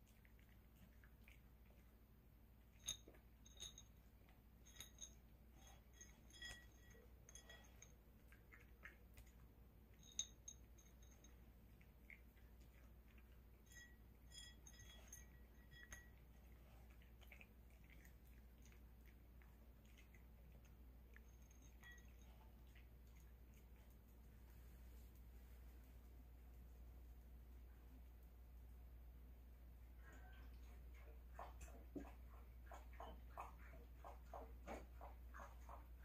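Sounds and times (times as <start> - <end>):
dog chewing: 0.0 - 24.4, 30.6 - 36.0
kibble clinking in a ceramic bowl: 2.6 - 23.6.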